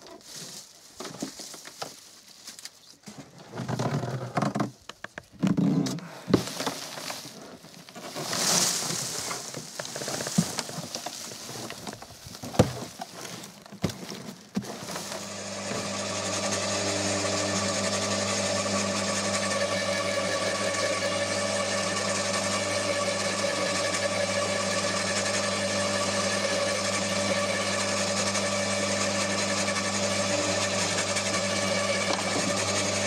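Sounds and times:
rustle of stalks: 0.0s - 4.1s, 4.7s - 15.7s
machine motor humming: 15.0s - 33.0s.

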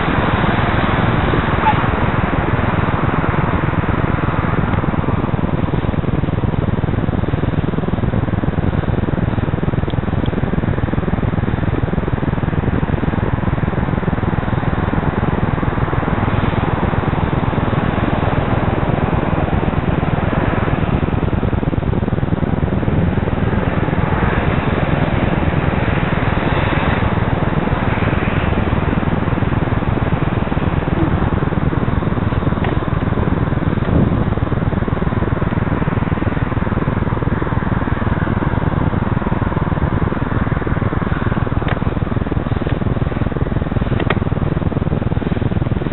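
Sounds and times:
road traffic passing: 0.0s - 5.9s, 22.8s - 44.2s
wind rushing on microphone: 0.0s - 45.9s.

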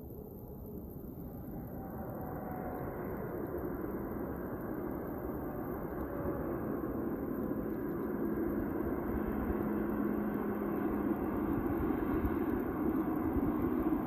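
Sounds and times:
distant jet engines roaring: 0.0s - 14.0s
steady hum: 2.9s - 14.0s.

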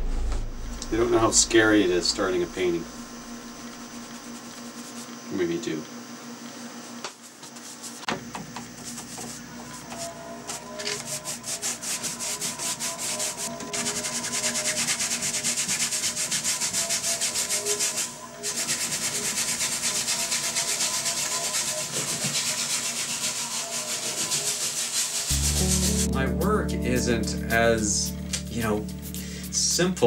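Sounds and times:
paintbrush scrubbing canvas: 4.0s - 5.2s, 7.2s - 8.0s, 11.1s - 26.1s.

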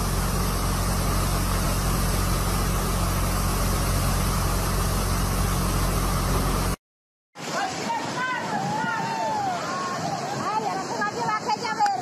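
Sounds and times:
engine idling: 0.0s - 6.8s
floodwater rushing across road: 0.0s - 6.8s, 7.4s - 12.0s.

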